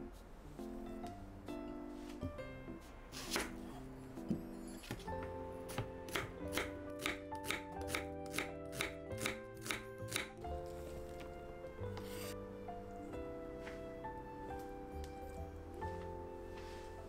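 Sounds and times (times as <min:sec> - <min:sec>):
background music: 0:00.0 - 0:17.0
knife chopping on cutting board: 0:03.2 - 0:03.6, 0:05.7 - 0:10.4.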